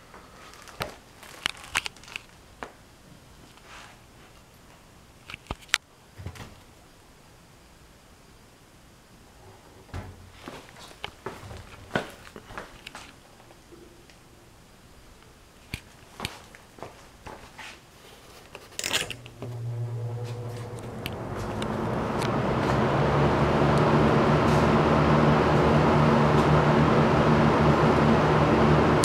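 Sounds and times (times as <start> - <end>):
box fan motor humming: 19.0 - 29.0.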